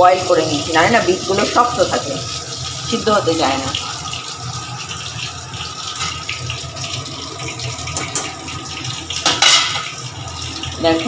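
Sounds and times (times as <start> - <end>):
hot oil sizzling and crackling: 0.0 - 11.0.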